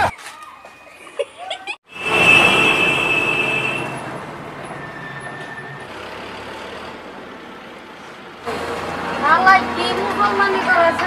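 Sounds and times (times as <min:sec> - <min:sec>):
traffic rumble: 0:01.2 - 0:11.0
vehicle passing with whine: 0:01.9 - 0:11.0.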